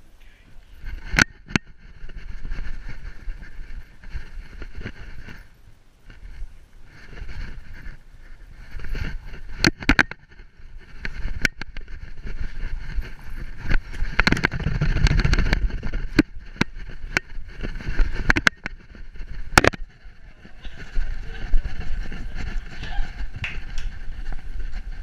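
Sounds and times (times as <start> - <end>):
camera mount rustling and rumbling: 0.8 - 25.0
sharp clicks and knocks: 0.9 - 2.2, 9.3 - 20.0
fur brushing camera housing: 6.1 - 25.0.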